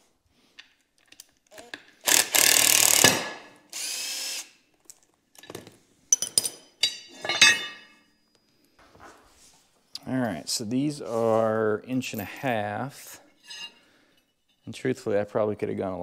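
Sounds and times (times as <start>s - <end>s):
metal clinks of bolt and plate: 6.1s - 7.9s.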